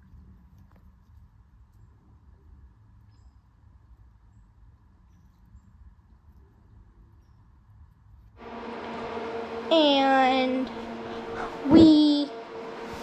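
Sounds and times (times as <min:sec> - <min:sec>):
low outdoor rumble: 0:08.2 - 0:13.0.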